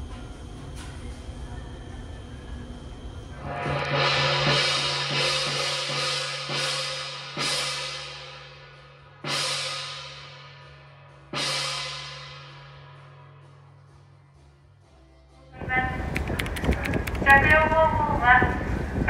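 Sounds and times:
gong struck with a mallet: 3.4s - 10.7s.

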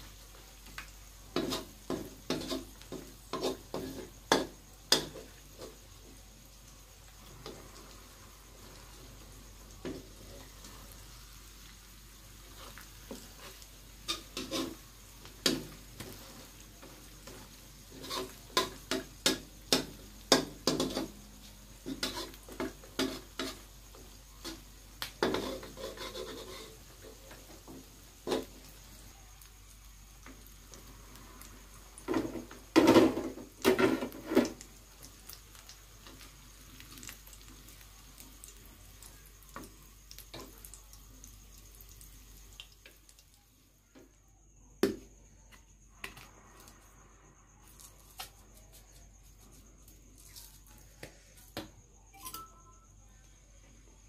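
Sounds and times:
faint frying sizzle: 0.0s - 54.0s
plastic spatulas scraping on wok: 1.3s - 5.8s, 12.4s - 21.2s, 21.8s - 23.7s, 24.4s - 27.4s, 32.1s - 34.6s.

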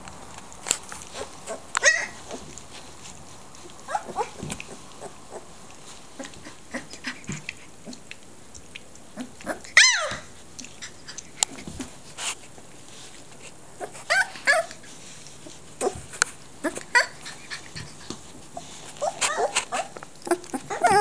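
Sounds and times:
puppies squealing and whining: 1.0s - 2.8s, 3.7s - 5.5s, 9.4s - 11.8s, 13.8s - 14.9s, 16.6s - 21.0s
puppy yelp: 1.2s - 2.4s, 3.9s - 4.4s, 9.4s - 11.2s, 13.8s - 14.8s, 16.6s - 21.0s.

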